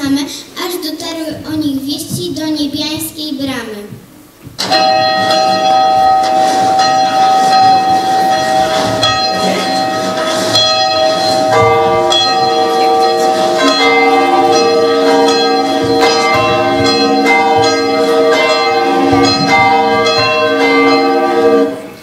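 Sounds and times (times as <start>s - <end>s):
carillon bells ringing: 4.6s - 22.0s.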